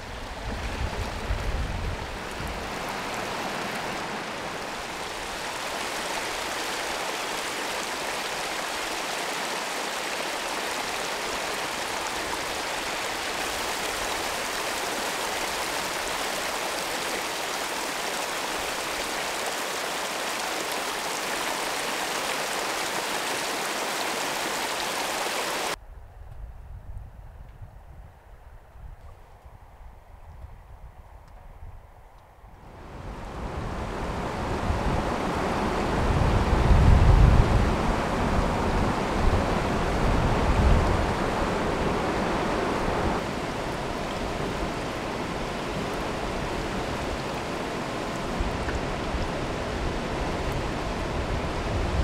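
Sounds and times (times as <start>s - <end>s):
water rushing down rocks: 0.0s - 25.8s, 37.4s - 52.0s.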